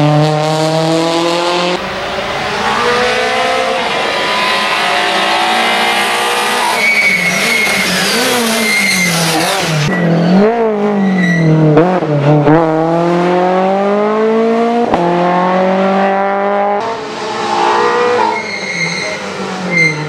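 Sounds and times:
rally car engine revving: 0.0s - 20.0s
tyre squeal: 2.7s - 10.3s, 10.9s - 11.6s, 17.7s - 20.0s.

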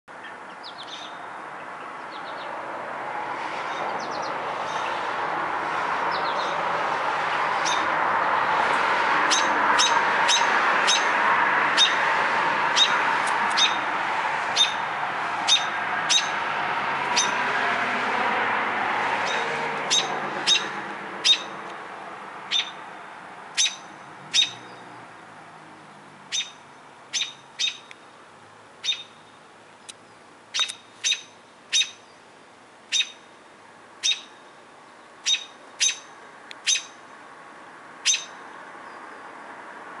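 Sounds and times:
robin call notes: 15.5s - 16.4s, 17.1s - 17.4s, 19.3s - 21.6s, 23.6s - 24.7s, 26.3s - 27.9s, 28.8s - 29.3s, 30.5s - 32.0s, 32.9s - 33.3s, 34.0s - 34.5s, 35.2s - 37.0s, 38.0s - 38.4s.

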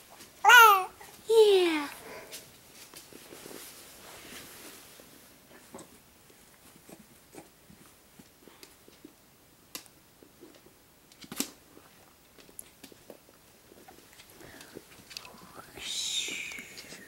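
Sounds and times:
baby grunting and cooing: 0.4s - 1.1s.

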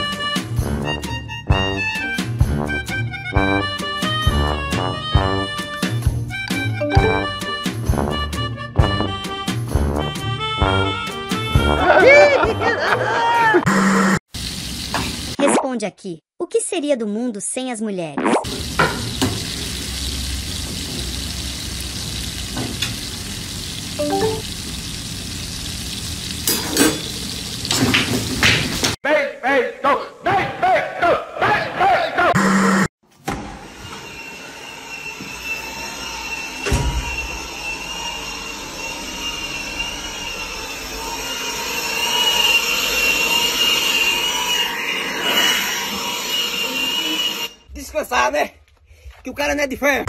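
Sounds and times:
food sizzling in a frying pan: 14.3s - 15.4s, 18.5s - 29.0s
short pitched sound: 24.0s - 24.4s
small electric motor whining: 33.6s - 47.6s.

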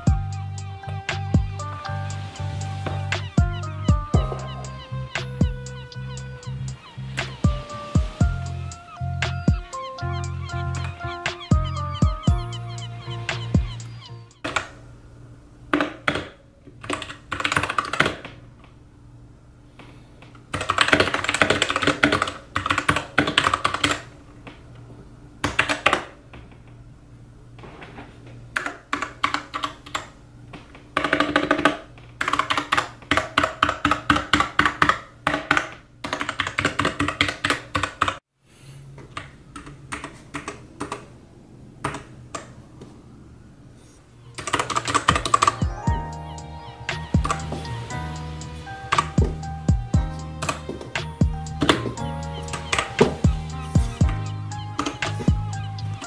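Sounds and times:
mechanical keyboard typing: 44.4s - 45.8s.

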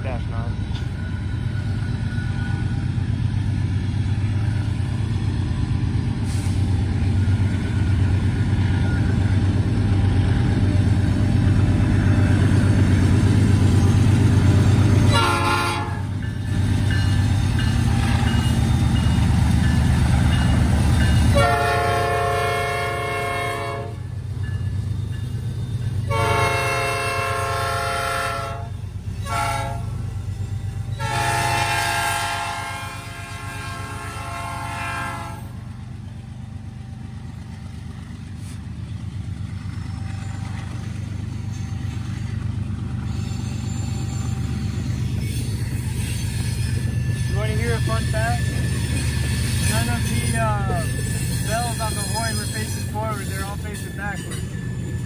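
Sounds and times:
diesel locomotive rumbling: 0.0s - 55.0s
locomotive air horn blasts: 15.1s - 16.1s, 21.3s - 24.0s, 26.1s - 29.9s, 31.0s - 35.6s.

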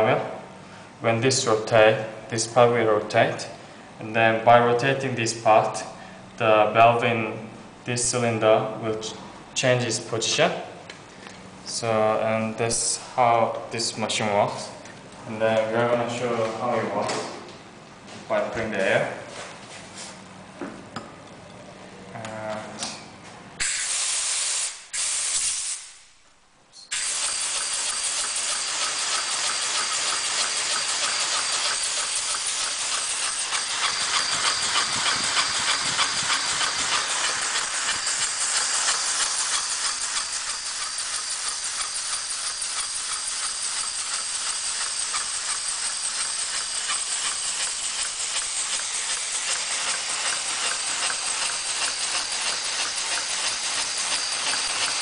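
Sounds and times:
compressed air hissing: 23.6s - 26.0s, 26.9s - 54.9s
pulsing exhaust strokes: 26.9s - 55.0s.

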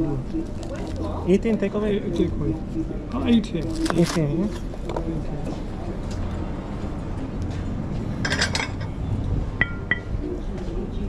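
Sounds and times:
crockery and cutlery clatter: 8.2s - 9.0s.

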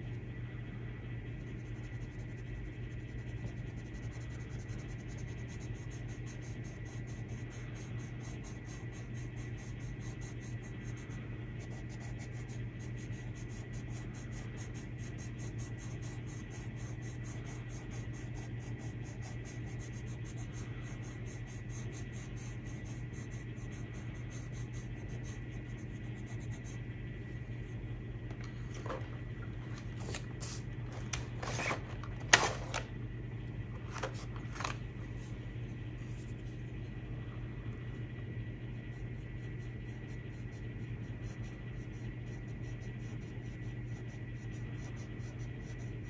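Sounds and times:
low hum and hiss: 0.0s - 46.0s
pencil scratching on paper: 1.4s - 26.9s, 38.7s - 46.0s.

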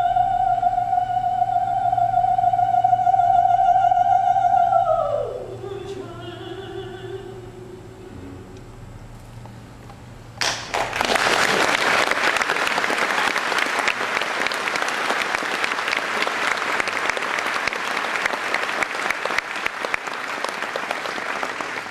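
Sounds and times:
faint low held note: 7.2s - 9.8s
audience clapping: 10.4s - 21.9s.

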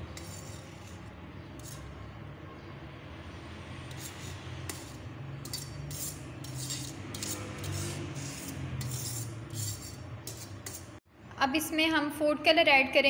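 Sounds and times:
metal spoon scraping a strainer: 0.0s - 2.2s, 3.7s - 11.0s.

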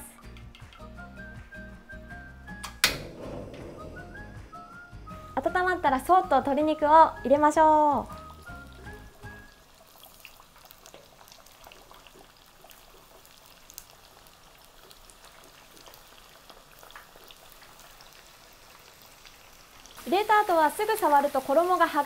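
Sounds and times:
chicken deep-frying in oil: 6.4s - 22.0s.

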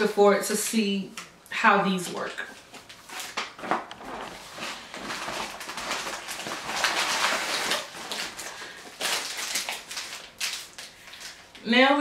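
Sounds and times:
plastic packaging crinkling: 2.1s - 11.6s.

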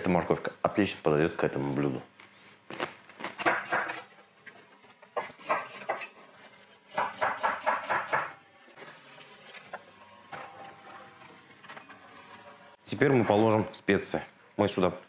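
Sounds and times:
knife chopping on wooden board: 3.4s - 4.0s, 7.0s - 8.3s.

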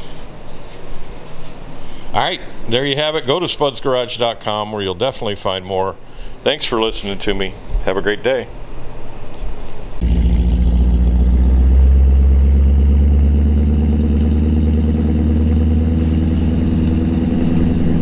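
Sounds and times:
truck engine running: 10.0s - 18.0s.

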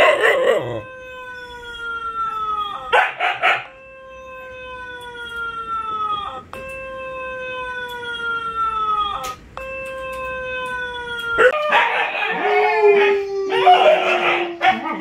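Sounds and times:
dog howling: 0.0s - 6.4s, 10.3s - 15.0s.

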